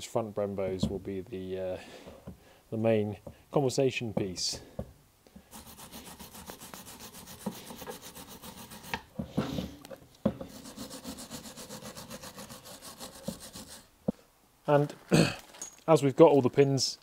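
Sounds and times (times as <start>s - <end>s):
hand scrubbing metal: 5.4s - 9.6s, 10.5s - 13.9s.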